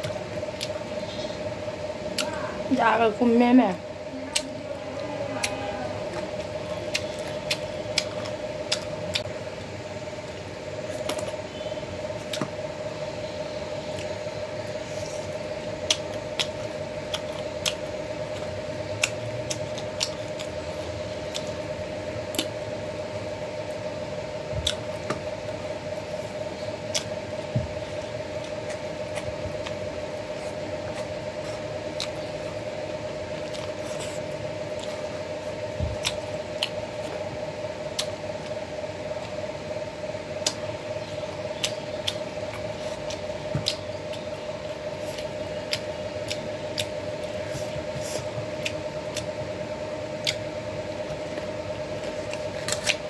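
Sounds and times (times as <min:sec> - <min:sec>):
steady background hum: 0:00.0 - 0:53.0
chewing and lip smacks: 0:05.4 - 0:09.3, 0:15.8 - 0:20.6, 0:21.2 - 0:21.7, 0:24.6 - 0:25.6, 0:26.8 - 0:27.2, 0:27.8 - 0:32.6, 0:33.3 - 0:37.3, 0:37.9 - 0:38.6, 0:40.4 - 0:40.7, 0:41.3 - 0:49.4, 0:50.1 - 0:53.0.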